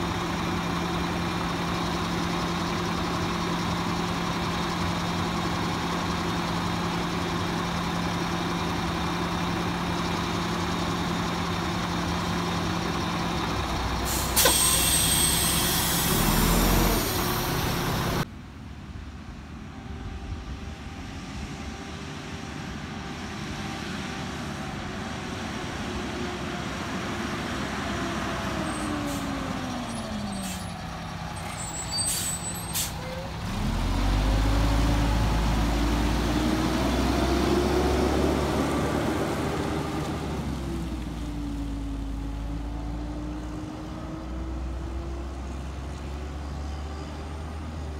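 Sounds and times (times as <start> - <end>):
diesel truck engine: 0.0 - 47.9
air brake hiss: 14.0 - 17.4, 30.3 - 30.8, 31.6 - 33.0.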